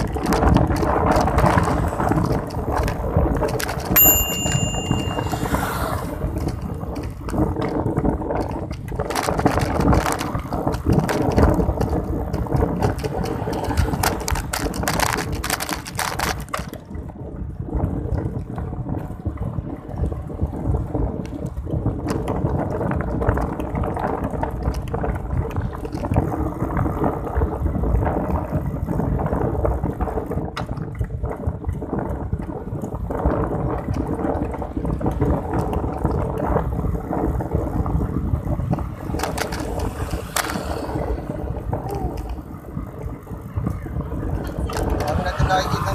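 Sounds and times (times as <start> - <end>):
wind buffeting microphone: 0.0 - 45.9.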